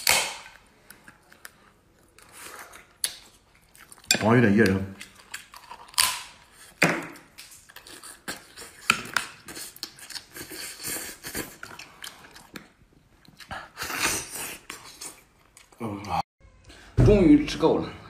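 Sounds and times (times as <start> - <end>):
wet chewing and lip smacks: 5.0 - 15.8.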